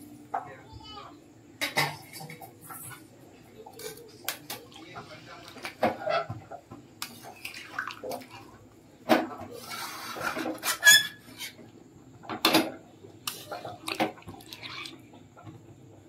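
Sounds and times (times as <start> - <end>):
liquid sloshing: 7.0 - 8.8, 13.3 - 15.6
metal spatula scraping a pot: 9.6 - 11.6.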